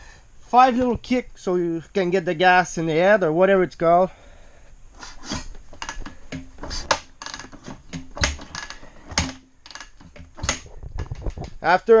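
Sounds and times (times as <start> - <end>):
motorcycle kickstarter clacking: 5.3 - 11.6.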